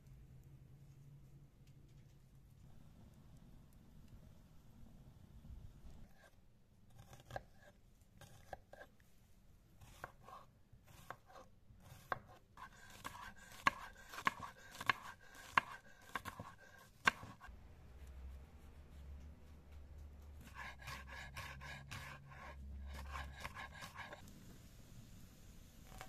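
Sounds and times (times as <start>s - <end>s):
knife chopping on stone: 9.8s - 17.5s, 20.4s - 24.2s.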